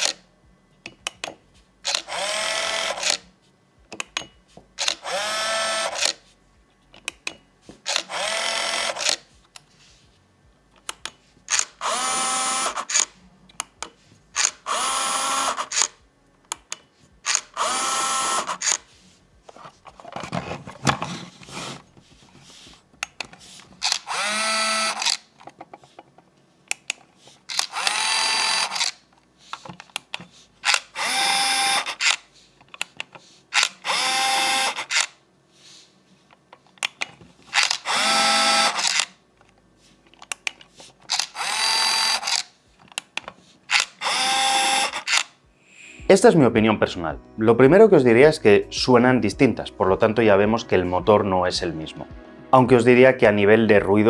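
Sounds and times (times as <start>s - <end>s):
smart lock motor whining: 7.9s - 9.2s, 11.5s - 13.1s, 14.4s - 16.0s, 17.2s - 18.8s, 23.8s - 25.2s, 27.5s - 29.0s, 30.6s - 32.2s, 37.5s - 39.2s, 41.1s - 42.5s, 43.7s - 45.3s.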